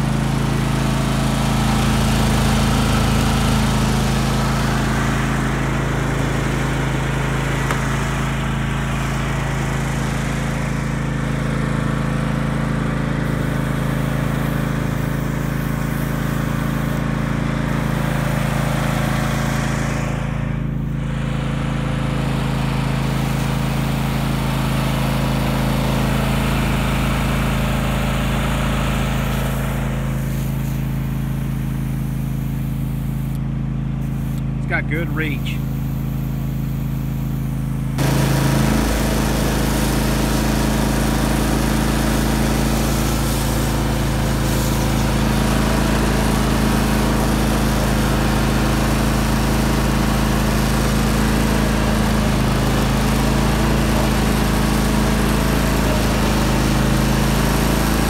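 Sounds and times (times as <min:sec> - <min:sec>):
lawn tractor engine running: 0:00.0 - 0:58.0.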